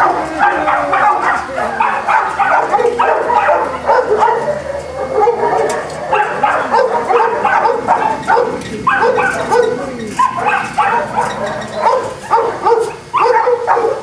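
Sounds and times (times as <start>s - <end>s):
dogs yipping and whining: 0.0s - 14.0s.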